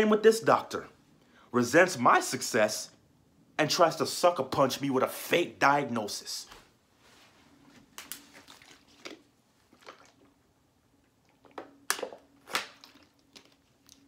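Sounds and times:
faint steady hum: 0:00.0 - 0:14.0
plastic bottle crinkling: 0:07.9 - 0:10.3, 0:11.3 - 0:14.0.

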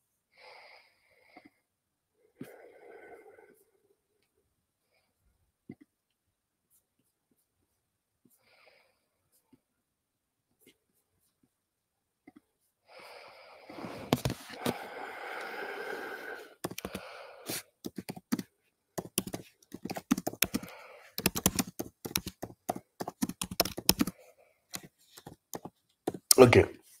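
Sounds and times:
keyboard typing clicks: 0:16.6 - 0:17.0, 0:17.9 - 0:24.1, 0:24.7 - 0:26.6.

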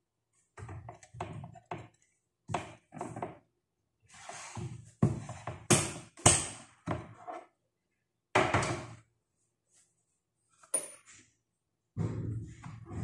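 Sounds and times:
knocks and thuds on a counter: 0:04.6 - 0:07.2, 0:08.3 - 0:09.0, 0:12.0 - 0:13.0.

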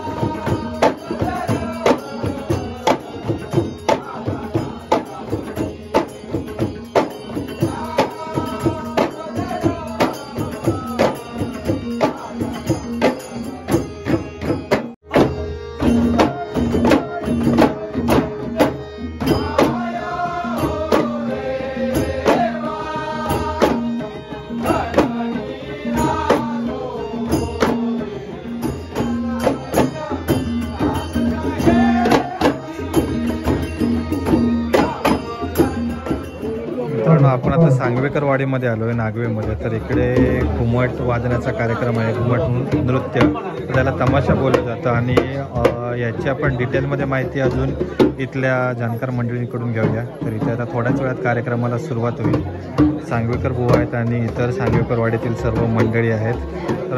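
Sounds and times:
clay-pot drums beaten by hand: 0:00.0 - 0:56.9
man singing: 0:00.0 - 0:56.9
harmonium holding a note: 0:13.5 - 0:37.4.

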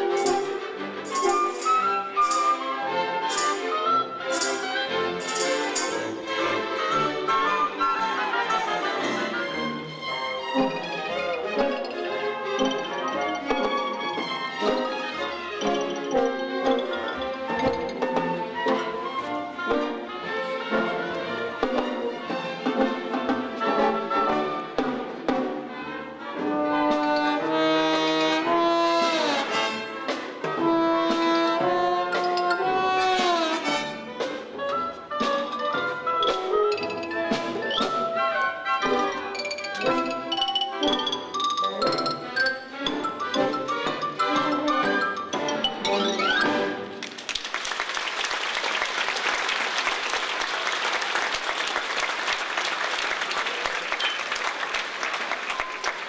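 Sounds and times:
percussion strikes: 0:00.0 - 0:20.0, 0:28.3 - 0:47.5
orchestra playing ballet music: 0:00.0 - 0:56.0
audience applauding: 0:47.0 - 0:56.0.

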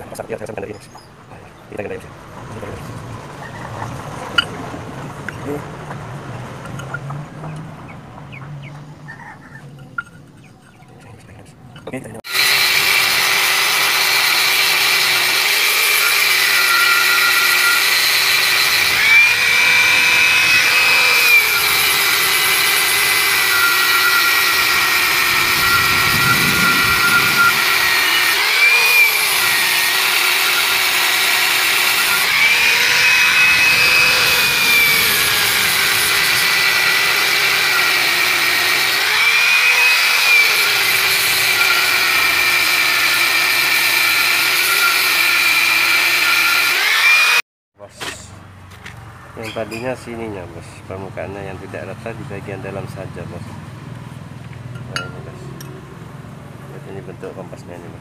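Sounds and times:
angle grinder grinding metal: 0:11.8 - 0:47.4.

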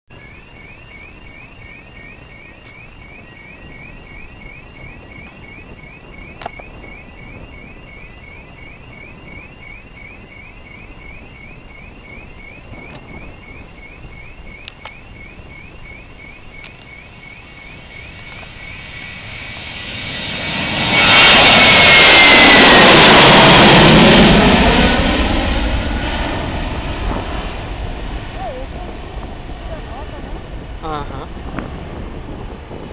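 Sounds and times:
electronic alarm chirping: 0:00.1 - 0:27.5
outdoor background noise: 0:00.1 - 0:32.9.

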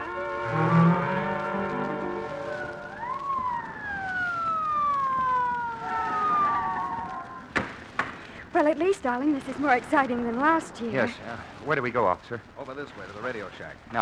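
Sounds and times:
music phrase: 0:00.0 - 0:03.2
police car siren: 0:00.0 - 0:07.5.

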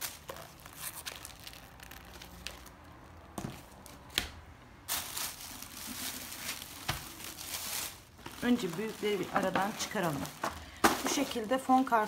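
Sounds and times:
plastic bag rustling: 0:00.0 - 0:04.0, 0:04.8 - 0:12.0.

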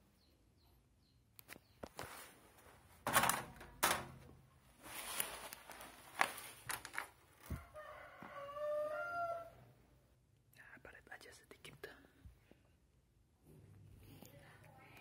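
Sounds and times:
clicks and knocks of metal oven: 0:03.0 - 0:04.4
rooster crowing: 0:07.5 - 0:09.8.

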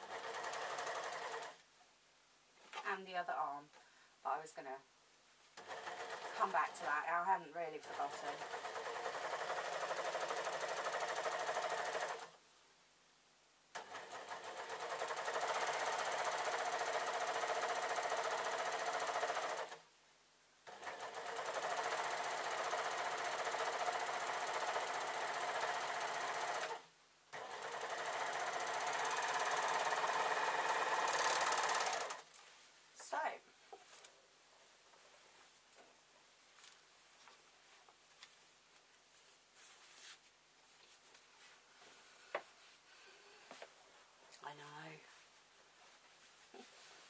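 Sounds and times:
overlocker sewing machine stitching: 0:00.0 - 0:01.6, 0:05.6 - 0:07.0, 0:07.8 - 0:12.4, 0:13.8 - 0:19.8, 0:20.6 - 0:32.3.

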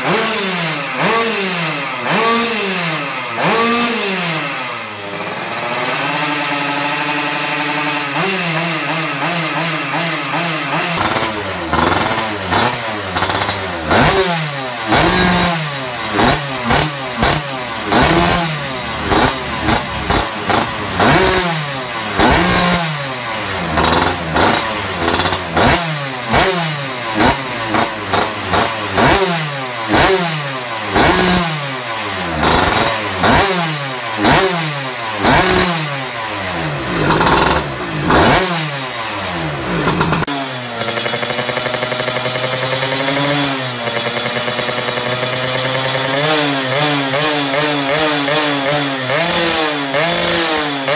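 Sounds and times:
two-stroke engine revving: 0:00.0 - 0:50.9.

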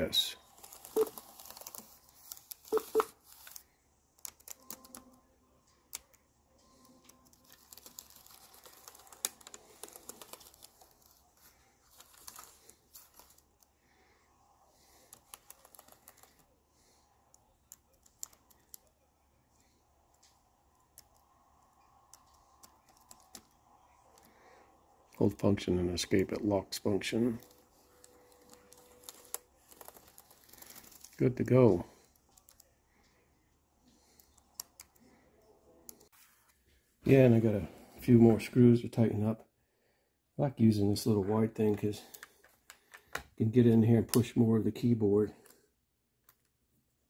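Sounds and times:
laptop keys clicking: 0:22.1 - 0:24.3.

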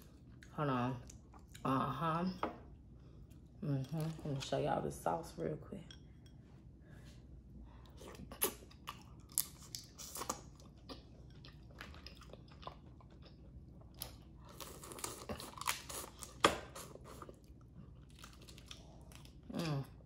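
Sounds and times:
chewing and biting through shells: 0:08.2 - 0:19.7.

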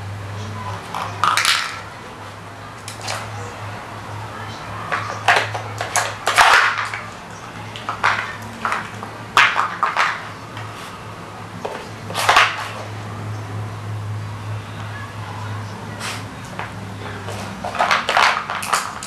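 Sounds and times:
puzzle pieces knocking and clattering: 0:01.0 - 0:01.9, 0:04.9 - 0:07.1, 0:07.8 - 0:10.3, 0:17.6 - 0:19.0.

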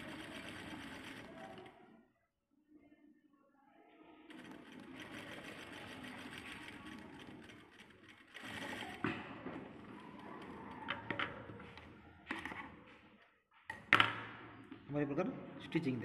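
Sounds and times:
sewing machine clicks: 0:00.0 - 0:01.8, 0:04.3 - 0:11.2
sewing machine running: 0:00.0 - 0:02.0, 0:04.3 - 0:11.9.

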